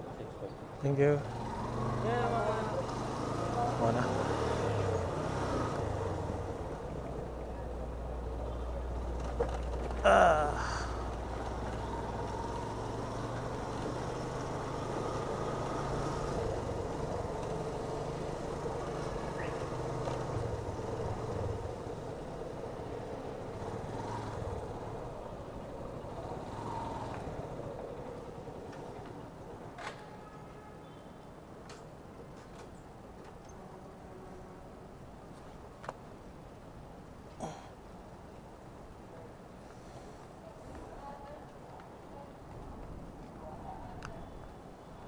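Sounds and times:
motorcycle engine at low speed: 1.2s - 29.2s.

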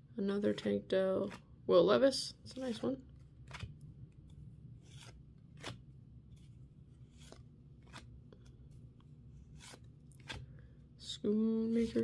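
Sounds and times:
trading cards flicking and sliding: 2.6s - 8.9s, 9.5s - 10.5s.

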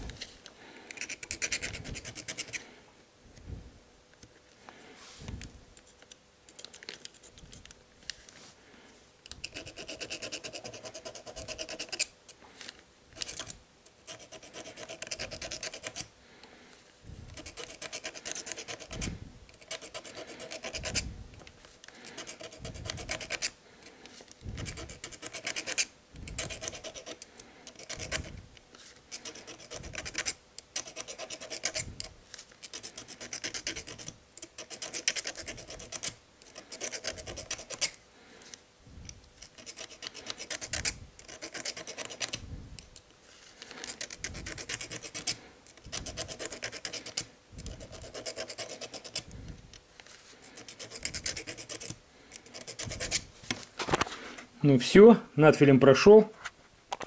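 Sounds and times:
file rasping on metal: 9.4s - 12.1s, 13.2s - 16.1s, 17.3s - 21.0s, 22.1s - 23.6s, 24.6s - 28.3s, 29.2s - 31.9s, 32.7s - 38.0s, 39.5s - 42.4s, 46.0s - 49.3s, 50.5s - 53.2s.

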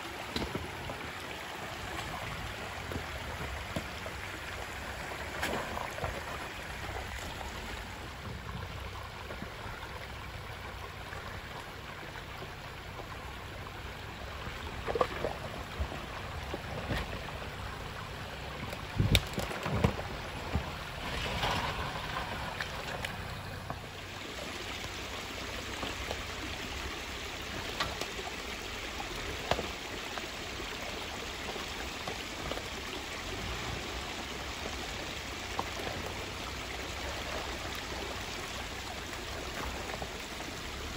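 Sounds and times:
water trickling: 0.0s - 40.9s
vehicle engine running slowly: 19.8s - 40.9s.

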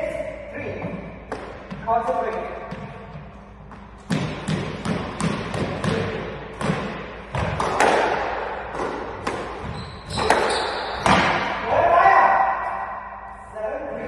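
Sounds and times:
squash ball thuds: 0.8s - 11.6s.

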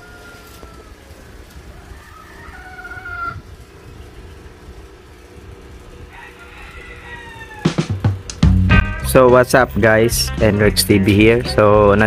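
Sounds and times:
rooster crowing: 0.0s - 3.7s, 5.8s - 8.0s
steady low rumble: 8.1s - 12.0s.

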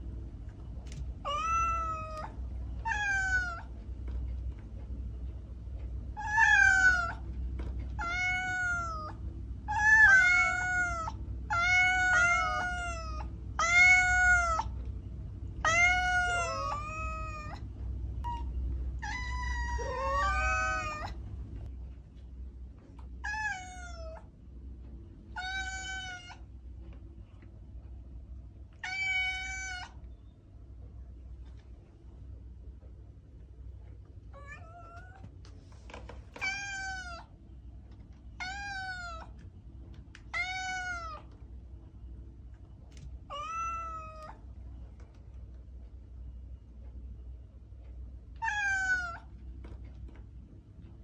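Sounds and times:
cat meowing: 1.2s - 3.7s, 6.2s - 7.2s, 8.0s - 14.8s, 15.6s - 17.6s, 18.2s - 21.2s, 23.2s - 24.3s, 25.4s - 26.4s, 28.8s - 30.0s, 36.4s - 37.3s, 38.4s - 39.3s, 40.3s - 41.3s, 43.3s - 44.4s, 48.4s - 49.3s.

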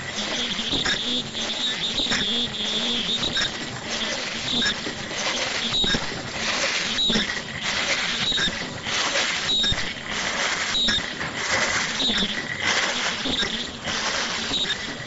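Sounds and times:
machine clattering and hissing: 0.0s - 15.0s.

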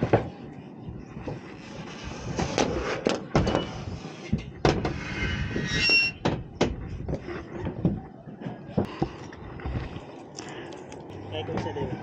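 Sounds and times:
knocks and clatters on metal roof: 2.4s - 3.7s, 4.3s - 5.0s
high squeak: 4.9s - 6.4s.

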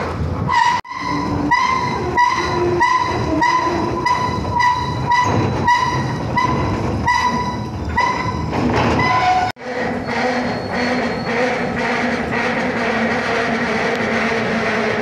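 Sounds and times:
ringing metallic squeal: 0.5s - 11.7s.

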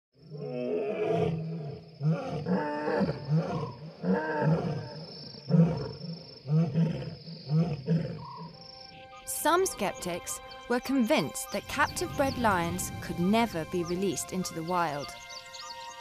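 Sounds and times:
lion roaring and grunting: 0.3s - 4.9s, 5.5s - 8.3s.

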